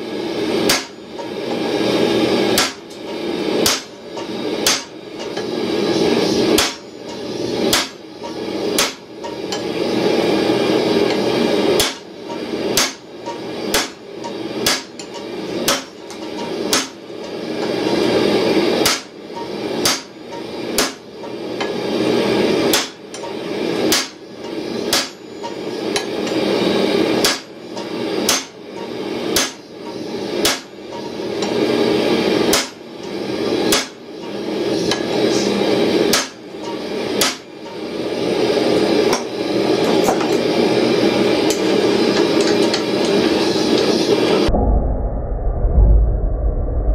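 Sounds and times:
hammer striking steel on anvil: 0.6s - 1.4s, 2.5s - 5.6s, 6.5s - 9.8s, 11.1s - 18.1s, 18.8s - 21.8s, 22.7s - 26.4s, 27.2s - 31.7s, 32.4s - 35.2s, 36.0s - 37.9s.

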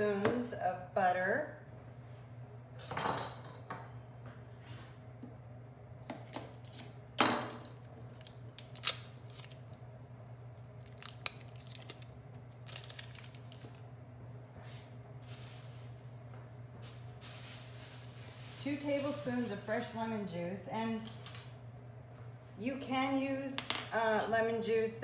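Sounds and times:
low steady hum: 0.0s - 25.0s
paper wrapper rustling and tearing: 8.1s - 9.7s, 10.8s - 13.8s.

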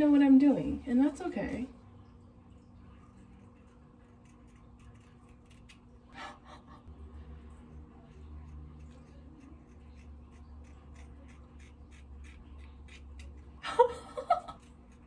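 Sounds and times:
scissors snipping hair: 3.6s - 5.9s, 8.0s - 13.6s.

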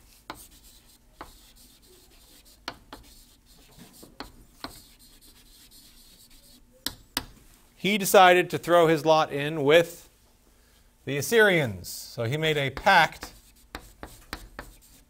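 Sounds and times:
chalk scratching on chalkboard: 0.0s - 7.0s, 12.7s - 15.0s
chalk tapping on board: 0.2s - 7.4s, 12.8s - 15.0s.

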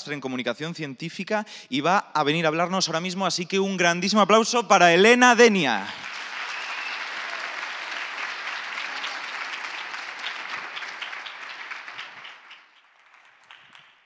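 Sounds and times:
audience applause: 6.0s - 14.0s.

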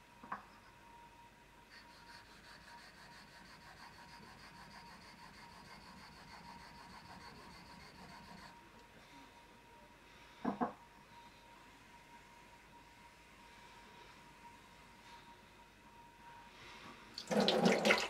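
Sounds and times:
steel rubbing on whetstone: 1.7s - 8.5s.

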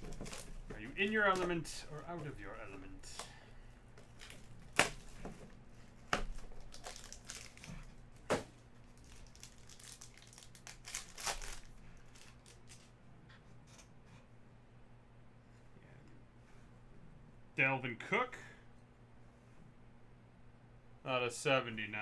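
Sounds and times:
plastic wrap crinkling and tearing: 6.3s - 8.2s, 8.8s - 12.9s.

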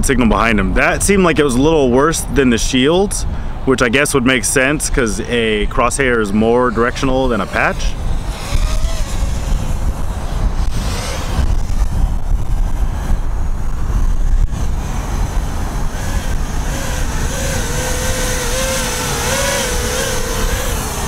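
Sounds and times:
wind buffeting microphone: 0.0s - 21.0s
quadcopter motors whining: 4.6s - 21.0s.

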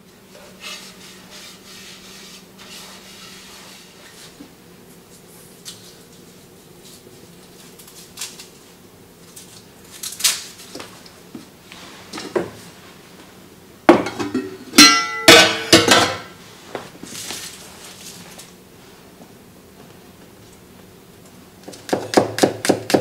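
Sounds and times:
metal lid clanking and scraping: 14.0s - 16.3s.

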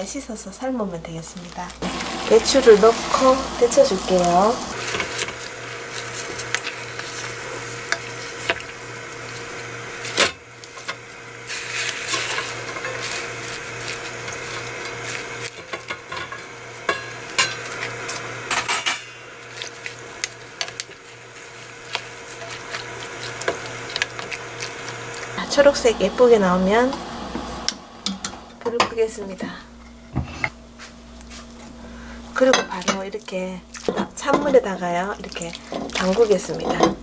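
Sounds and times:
steady low hum: 1.6s - 4.9s, 24.1s - 32.4s
spatula stirring in boiling water: 1.8s - 18.3s, 19.5s - 28.8s, 35.2s - 36.9s.

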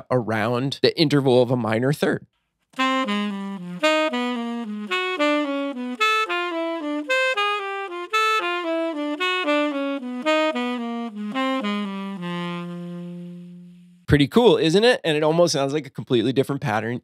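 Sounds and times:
tenor saxophone playing jazz: 2.8s - 14.1s.

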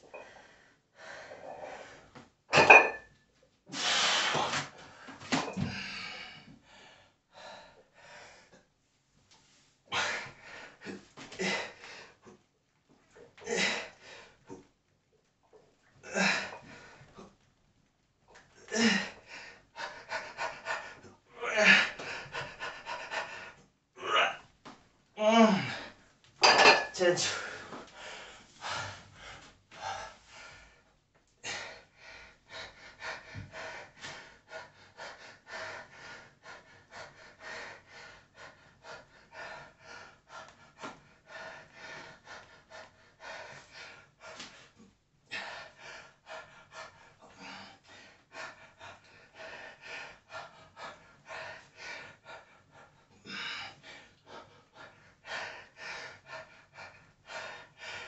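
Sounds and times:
man breathing hard: 0.0s - 2.2s, 3.7s - 8.6s, 27.2s - 58.0s.

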